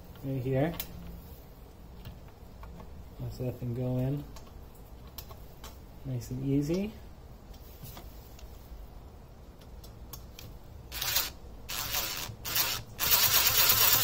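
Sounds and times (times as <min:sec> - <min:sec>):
cordless drill driving screw: 0:10.9 - 0:14.0.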